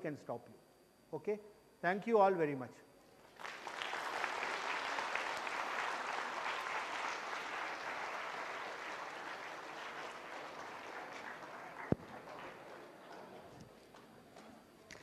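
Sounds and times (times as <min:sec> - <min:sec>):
audience applauding: 0:03.3 - 0:13.5.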